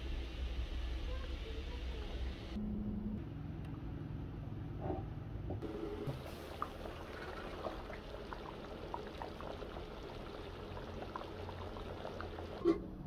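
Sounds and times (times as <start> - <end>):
porridge bubbling in pot: 5.6 - 12.7.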